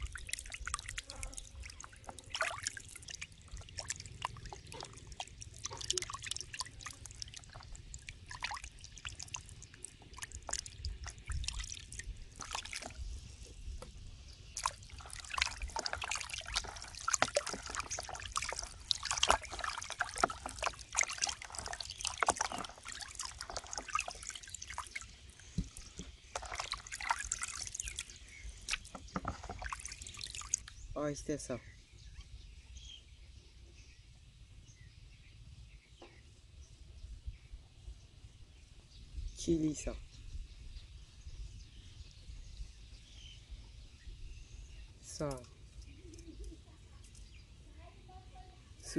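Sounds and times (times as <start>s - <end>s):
water dripping: 0.0s - 13.2s, 13.8s - 30.8s
water splashing in a basin: 0.0s - 13.5s, 14.4s - 30.8s.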